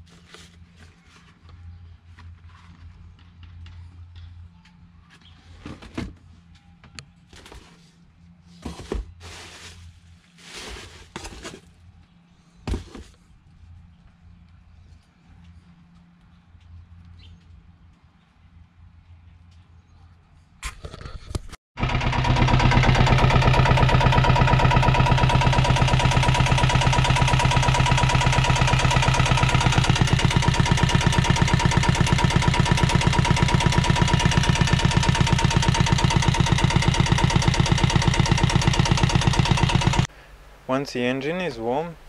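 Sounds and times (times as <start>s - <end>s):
diesel engine idling: 21.8s - 40.6s.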